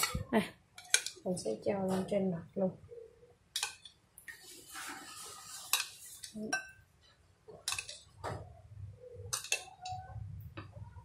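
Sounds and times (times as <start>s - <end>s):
metal spoon clinking on a ceramic bowl: 9.4s - 10.0s.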